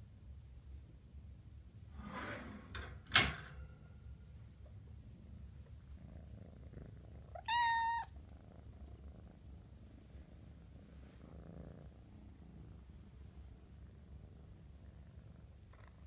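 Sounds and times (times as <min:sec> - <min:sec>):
kitten purring: 0:05.0 - 0:16.0
kitten mewing: 0:07.3 - 0:08.1.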